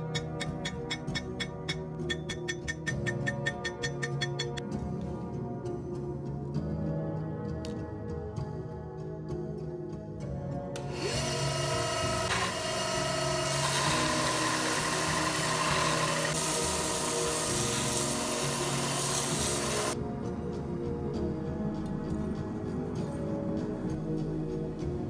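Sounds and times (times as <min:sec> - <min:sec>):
belt sander grinding steel blade: 0:10.8 - 0:20.0.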